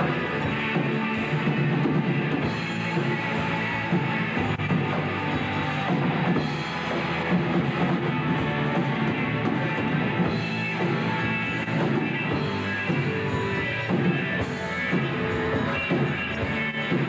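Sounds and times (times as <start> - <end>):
live rock band playing: 0.0 - 17.0.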